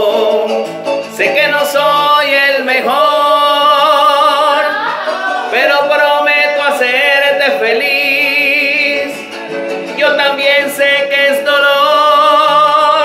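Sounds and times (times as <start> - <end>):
instrumental backing music: 0.0 - 13.0
man singing a romantic ballad: 0.0 - 13.0.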